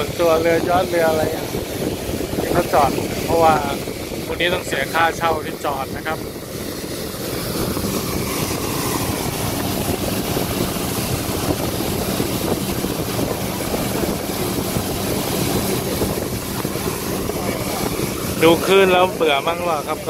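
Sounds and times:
motorboat engine drone: 0:00.0 - 0:20.0
water spraying off hull: 0:00.0 - 0:20.0
wind buffeting microphone: 0:00.0 - 0:20.0.

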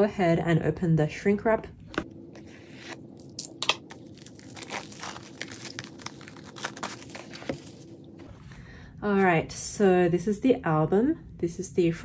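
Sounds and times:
plastic wrap crinkling and tearing: 0:02.2 - 0:08.3.

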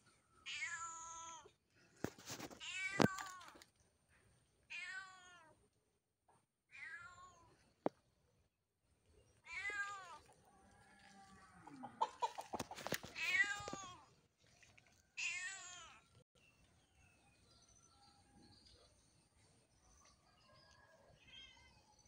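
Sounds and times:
cat meowing: 0:09.4 - 0:10.2, 0:13.2 - 0:14.0.

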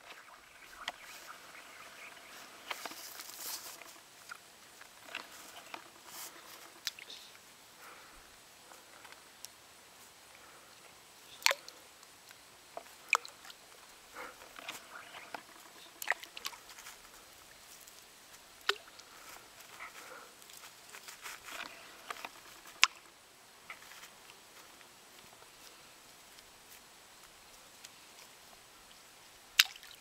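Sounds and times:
pebbles splashing into water: 0:29.6 - 0:30.0.

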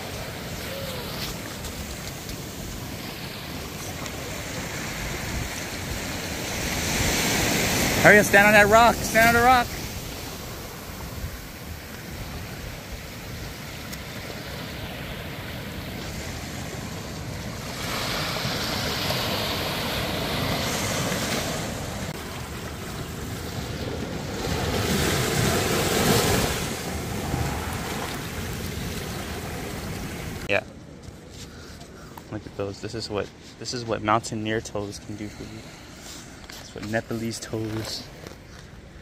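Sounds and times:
surf washing onto rocks: 0:00.0 - 0:30.6.

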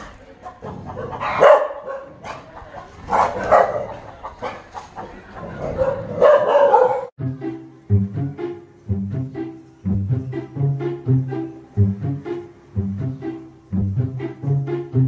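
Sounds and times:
small dog barking: 0:01.2 - 0:02.4, 0:03.1 - 0:04.7, 0:05.6 - 0:07.1.

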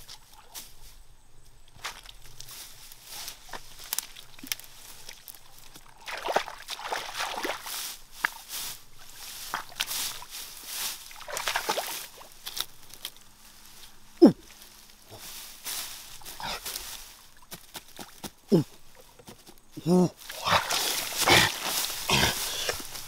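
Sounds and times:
grass rustling: 0:00.0 - 0:23.0
feet splashing through water: 0:03.2 - 0:12.5, 0:20.2 - 0:23.0.

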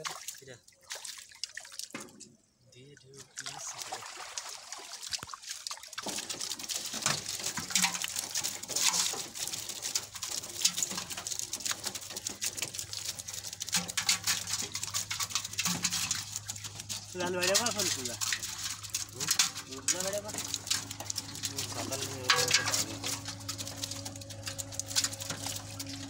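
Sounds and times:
small splashes in water: 0:00.0 - 0:02.4, 0:03.0 - 0:26.0.

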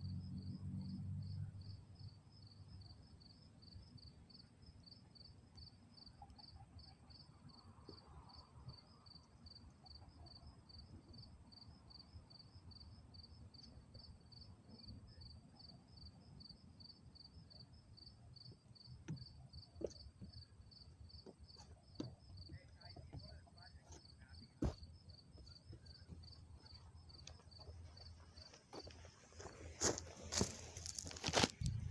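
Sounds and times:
cricket chirping: 0:00.0 - 0:31.9
faint low rumble: 0:22.1 - 0:31.9.

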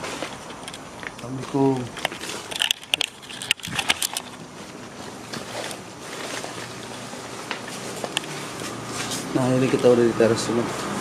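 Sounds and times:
people shuffling: 0:04.4 - 0:10.1.

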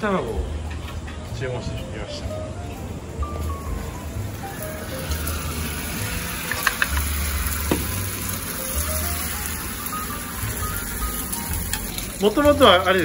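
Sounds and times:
egg sizzling in a hot pan: 0:04.3 - 0:13.0.

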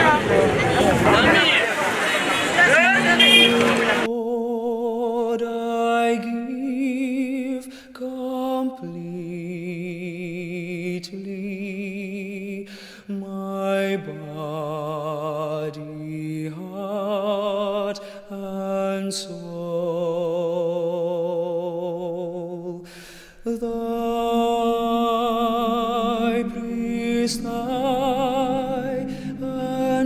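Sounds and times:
slow music with held notes: 0:24.2 - 0:30.0.

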